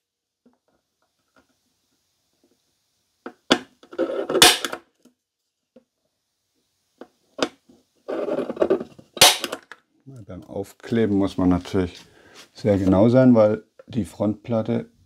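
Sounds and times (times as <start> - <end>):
center punch snapping: 9.2 - 9.6.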